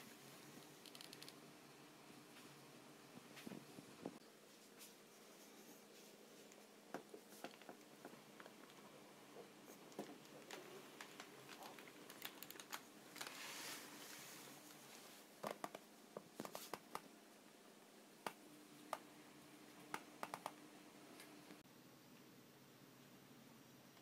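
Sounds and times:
paper crackling and clicking: 9.9s - 13.8s
paper rustling: 9.9s - 14.8s.

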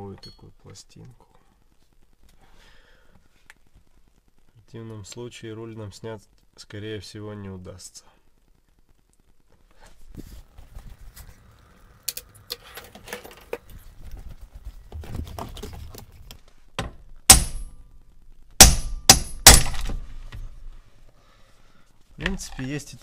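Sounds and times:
hard knocks with metallic ring: 17.3s - 17.8s, 18.6s - 20.0s.

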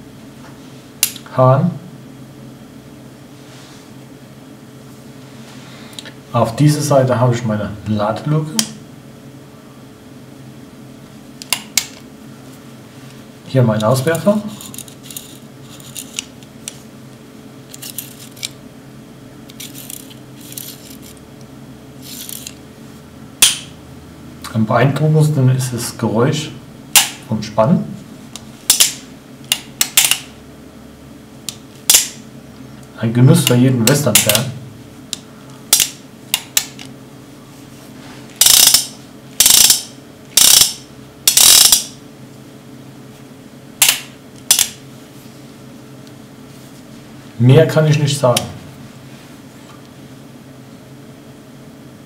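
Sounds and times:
revolver metallic clicks and scrapes: 14.6s - 16.8s, 17.7s - 18.6s, 19.5s - 21.2s, 22.0s - 22.6s, 38.4s - 41.9s.

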